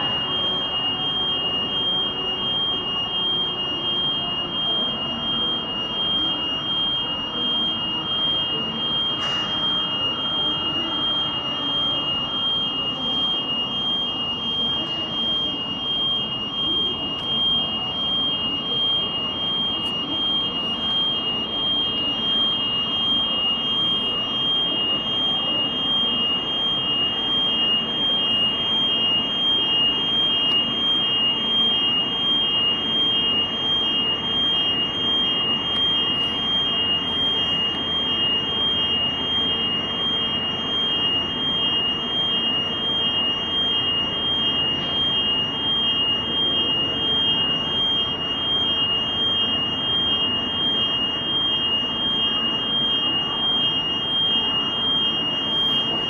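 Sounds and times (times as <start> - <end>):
jet engine rumble and whine: 8.0 - 13.5.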